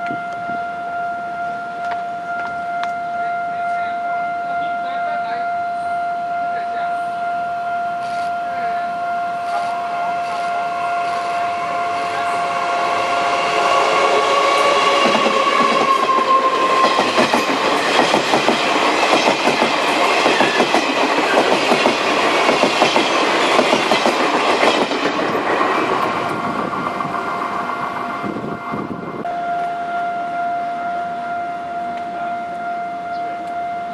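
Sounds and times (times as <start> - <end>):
level crossing alarm tone: 0.0 - 33.9
train wheels clattering over joints: 14.6 - 27.2.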